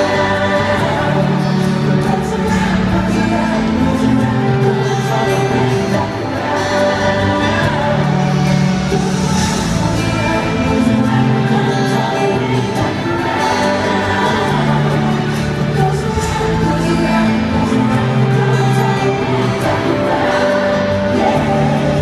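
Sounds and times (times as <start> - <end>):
live pop band playing: 0.0 - 22.0
several voices singing: 0.0 - 22.0.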